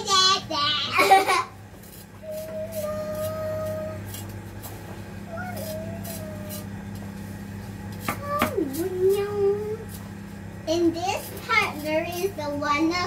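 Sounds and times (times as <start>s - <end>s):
steady low hum: 0.0s - 13.0s
child humming: 2.2s - 4.1s, 5.2s - 6.7s, 8.1s - 9.8s.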